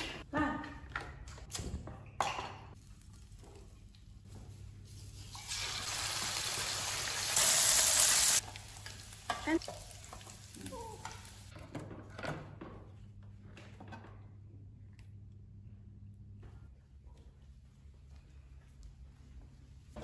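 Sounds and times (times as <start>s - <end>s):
food sizzling in frying pan: 5.3s - 11.5s.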